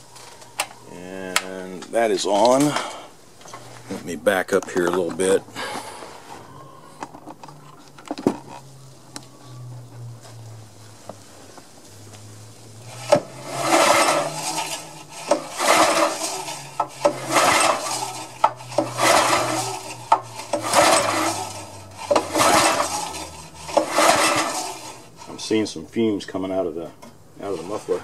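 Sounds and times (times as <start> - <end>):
engine pull-starter cranking: 12.8 - 25.6.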